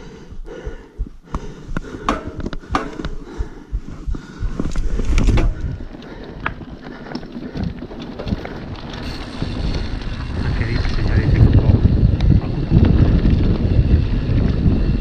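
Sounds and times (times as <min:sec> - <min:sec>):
wind on microphone: 0:00.0 - 0:06.7, 0:07.6 - 0:15.0
stones and bike rattling: 0:01.7 - 0:15.0
bike tyres on gravel: 0:04.6 - 0:15.0.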